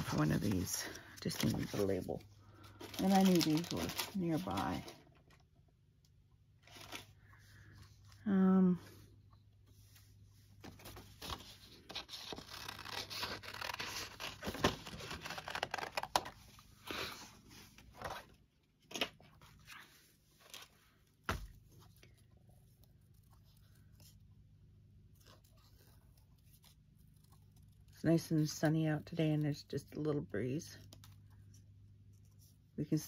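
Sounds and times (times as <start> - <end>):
paper rustling and tearing: 0.0 - 5.0, 10.6 - 17.3, 25.0 - 28.0.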